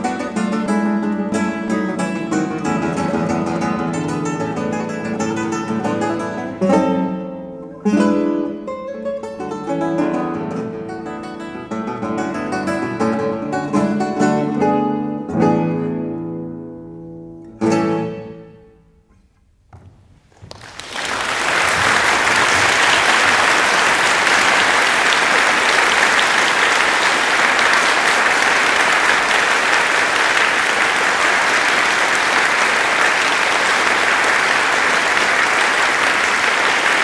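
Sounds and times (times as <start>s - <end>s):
audience applause: 20.3s - 37.0s.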